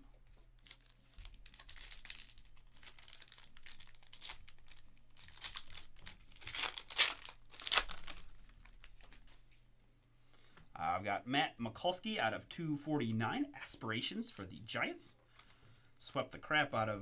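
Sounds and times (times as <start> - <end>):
foil wrapper crinkling and tearing: 0.6 - 9.2.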